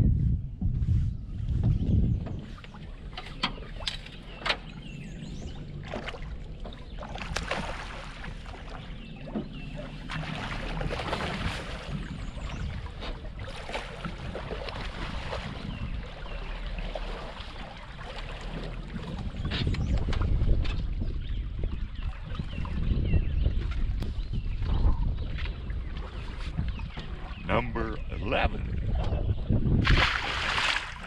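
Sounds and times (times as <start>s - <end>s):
wind rumble on microphone: 0.0s - 31.0s
knocks and clicks against boat: 1.5s - 27.5s, 28.8s - 29.6s
water splashing: 2.6s - 20.6s, 29.8s - 31.0s.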